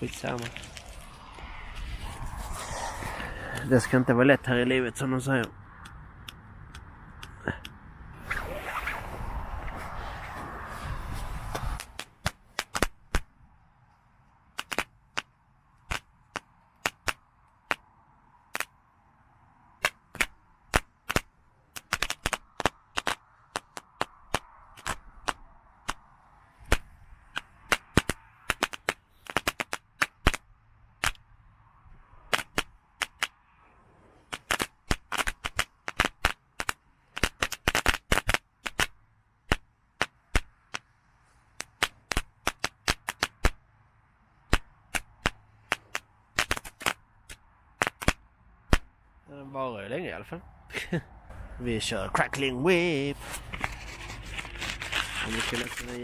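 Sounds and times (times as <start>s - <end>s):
firework pops and cracks: 0.0s - 3.7s, 11.5s - 13.3s, 14.5s - 17.9s, 18.5s - 18.8s, 19.8s - 26.0s, 26.7s - 31.2s, 32.3s - 33.4s, 34.2s - 40.9s, 41.6s - 43.6s, 44.5s - 48.9s
firework hissing burn: 0.4s - 4.1s, 8.2s - 11.9s.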